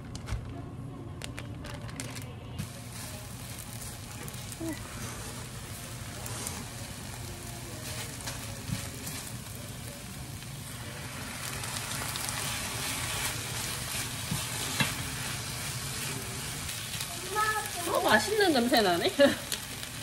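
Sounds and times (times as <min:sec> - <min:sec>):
food sizzling in a frying pan: 0:02.6 - 0:20.0
spatula scraping a pan: 0:10.8 - 0:17.0.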